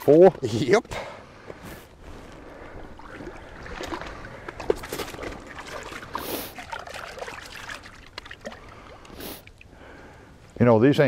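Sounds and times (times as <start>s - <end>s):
fish splashing in water: 2.9s - 9.7s.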